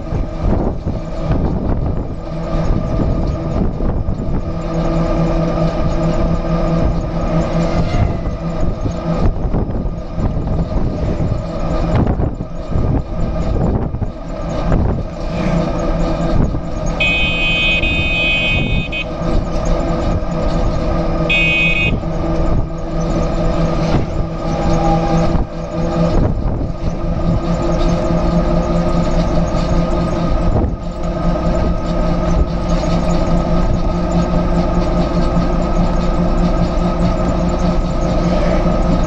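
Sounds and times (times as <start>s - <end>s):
bus engine and road noise: 0.0s - 39.0s
bus horn blast: 7.6s - 8.4s, 16.9s - 19.2s, 21.2s - 22.3s.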